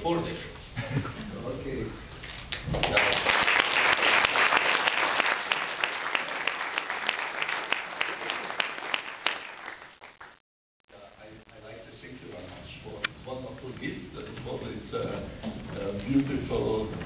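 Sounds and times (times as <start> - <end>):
audience applauding: 2.8 - 10.4.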